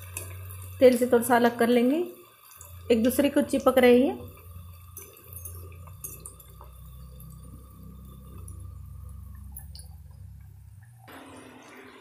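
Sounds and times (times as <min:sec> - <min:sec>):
oil bubbling and crackling: 0:00.0 - 0:12.0
low steady rumble: 0:02.8 - 0:11.1.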